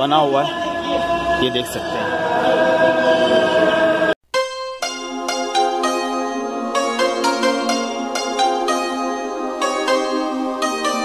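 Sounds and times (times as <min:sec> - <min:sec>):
plucked string instrument music: 0:04.3 - 0:11.0.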